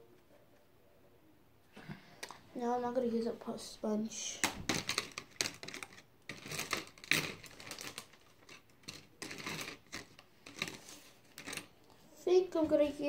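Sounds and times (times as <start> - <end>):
small hard objects rattling: 4.6 - 11.7.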